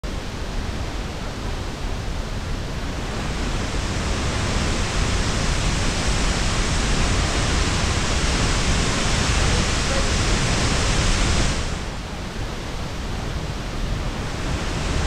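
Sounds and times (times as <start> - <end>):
waterfall rushing: 0.2 - 15.0
rocky river flowing: 2.8 - 12.8.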